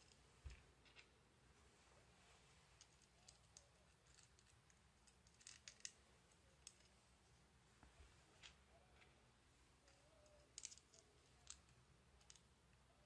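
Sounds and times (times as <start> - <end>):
small parts clicking and tapping: 2.8 - 7.0, 9.8 - 12.5.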